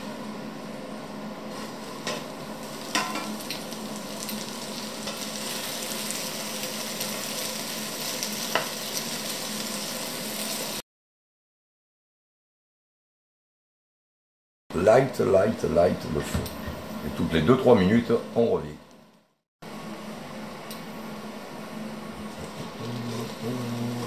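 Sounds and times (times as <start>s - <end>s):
potatoes sizzling in oil: 1.5s - 10.8s.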